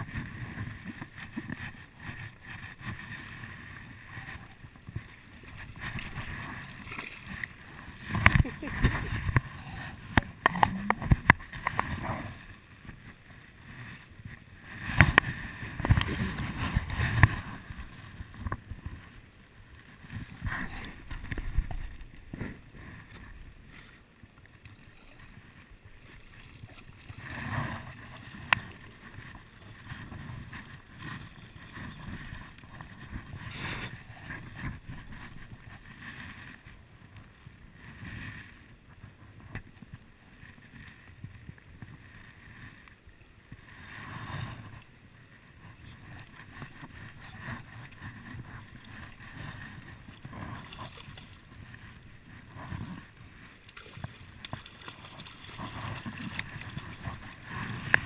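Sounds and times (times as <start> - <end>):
clicks and knocks of fishing gear: 4.1 - 12.0, 52.6 - 58.0.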